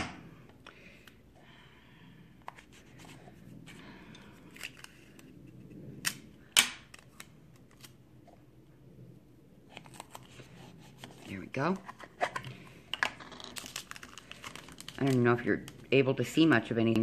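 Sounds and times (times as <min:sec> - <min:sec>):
rustling and scratching of plastic lid: 0:09.7 - 0:15.9.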